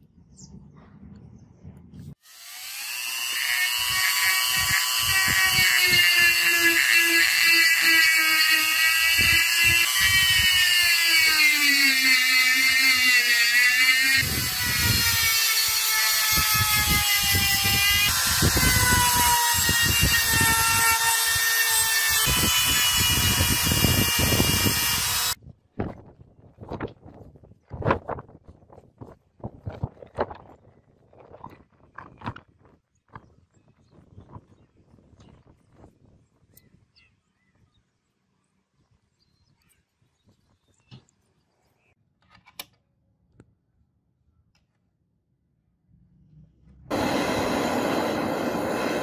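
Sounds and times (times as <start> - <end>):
rotary tool motor whine: 2.2 - 25.4, 46.9 - 49.0
sanding drum scratching metal: 3.3 - 15.2.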